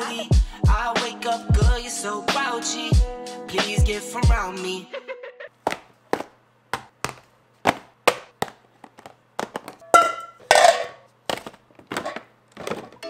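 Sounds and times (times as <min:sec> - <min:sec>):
groceries knocking on countertop: 0:05.6 - 0:13.0
metal pans clanging: 0:09.6 - 0:11.1, 0:11.9 - 0:13.0.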